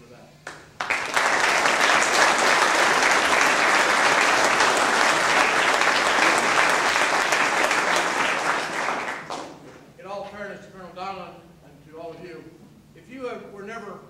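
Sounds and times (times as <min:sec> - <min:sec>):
audience applause: 0:00.5 - 0:09.6.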